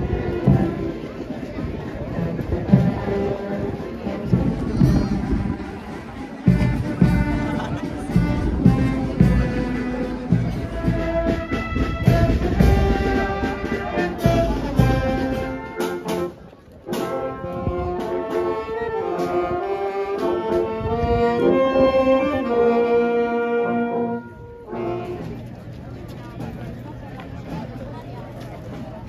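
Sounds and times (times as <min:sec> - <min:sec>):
brass band playing: 0:00.0 - 0:25.5
heavy drum beats: 0:00.1 - 0:01.1, 0:02.4 - 0:03.2, 0:04.2 - 0:16.3.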